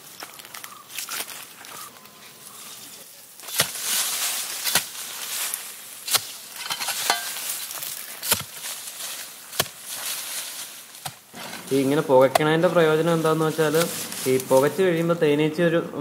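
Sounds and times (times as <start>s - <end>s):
loose soil falling: 2.8s - 15.2s
hoe striking earth: 3.4s - 8.9s, 9.5s - 10.3s, 11.0s - 14.8s.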